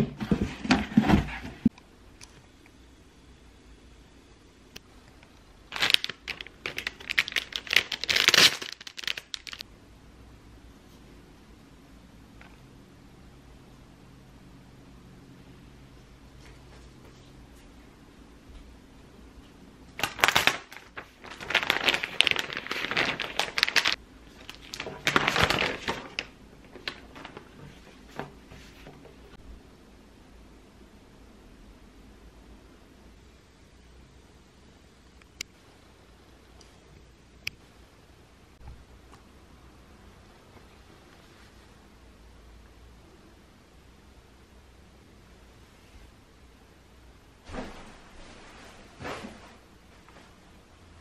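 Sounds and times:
plastic packaging crinkling: 5.7 - 9.6, 20.0 - 27.6
fabric bag rustling: 20.0 - 28.1.

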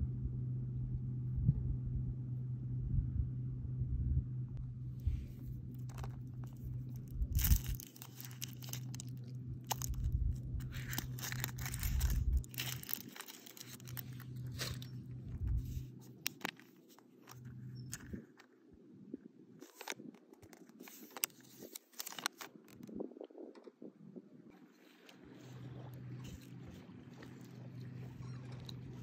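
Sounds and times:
low hum: 0.0 - 29.0
foil wrapper crinkling and tearing: 5.7 - 18.1, 19.6 - 22.9
plastic capsule handling: 5.7 - 18.4, 19.6 - 22.9.

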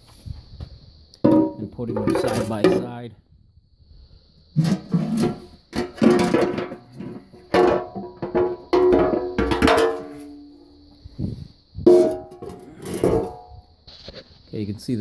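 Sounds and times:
steel pans clanging on concrete: 1.2 - 2.9, 4.6 - 10.5, 11.9 - 13.6.

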